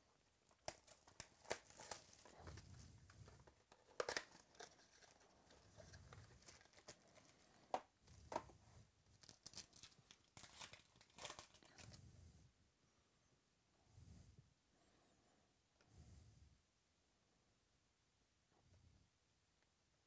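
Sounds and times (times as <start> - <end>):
card packaging rustling: 0.5 - 8.5, 9.2 - 11.9.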